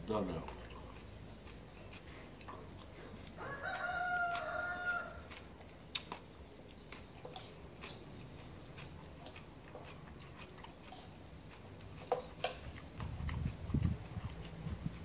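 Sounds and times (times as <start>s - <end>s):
rooster crowing: 3.4s - 5.4s.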